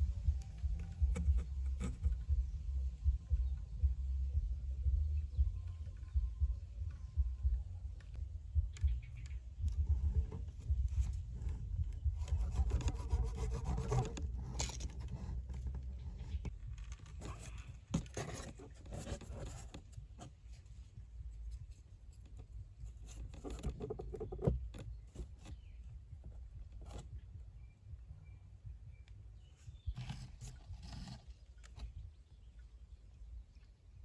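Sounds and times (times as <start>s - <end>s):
low background rumble: 0.0s - 34.0s
rubbing and scraping cardboard: 0.6s - 2.3s, 9.8s - 21.0s, 21.6s - 27.2s, 29.7s - 32.0s.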